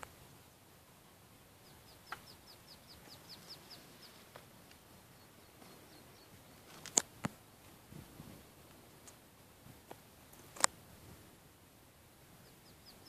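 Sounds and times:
short high chirping calls: 1.6 - 4.3, 12.4 - 13.0
sharp clicks: 6.7 - 7.4.

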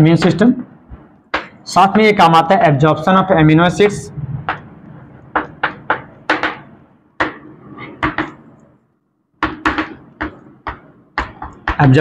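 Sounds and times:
chalk tapping and scraping on blackboard: 5.2 - 8.6, 9.4 - 12.0.

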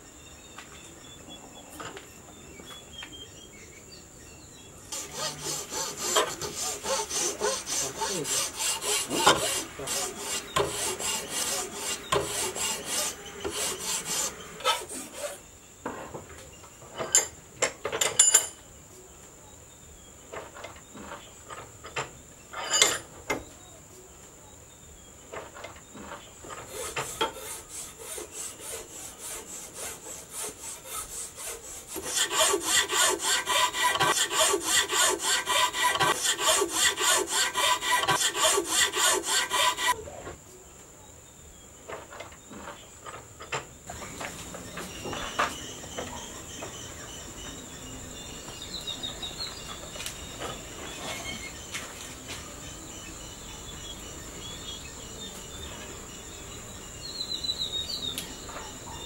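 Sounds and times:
high insect drone: 4.2 - 15.8, 24.7 - 40.2
file rasping on wood: 4.9 - 15.4, 26.4 - 40.0.

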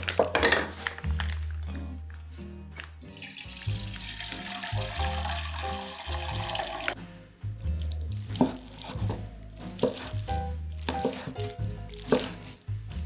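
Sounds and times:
background music: 0.0 - 13.0
water running: 3.0 - 7.0.

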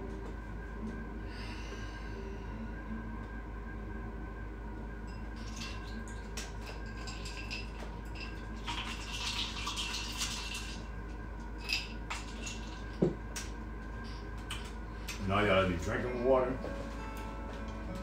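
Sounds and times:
ice clinking in a glass: 5.1 - 10.8, 11.6 - 13.0.

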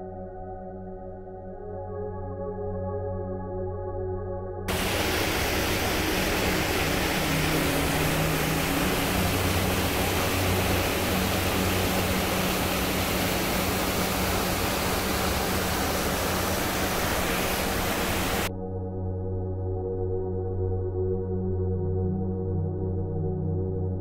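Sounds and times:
waterfall rushing: 4.7 - 18.5.

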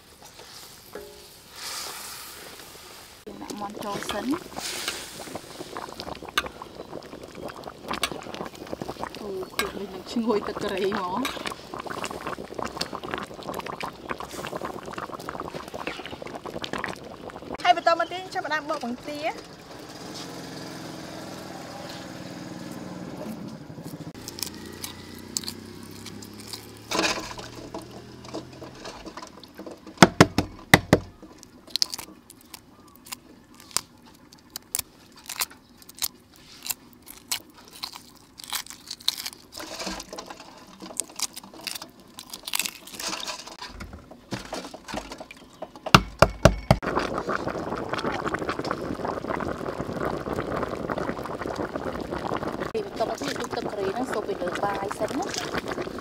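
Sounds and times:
pot of curry bubbling: 0.0 - 56.0
eggshells cracking: 3.3 - 17.6, 24.1 - 29.6, 30.3 - 43.6.

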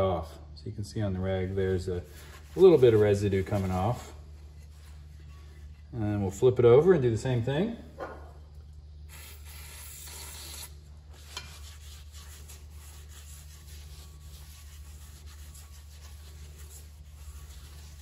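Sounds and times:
steady low hum: 0.0 - 18.0
cloth rag wiping metal: 1.6 - 5.7, 11.2 - 18.0.

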